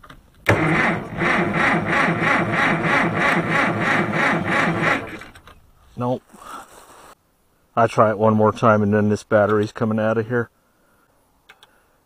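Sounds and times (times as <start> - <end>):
engine cranking by starter: 0.4 - 5.5.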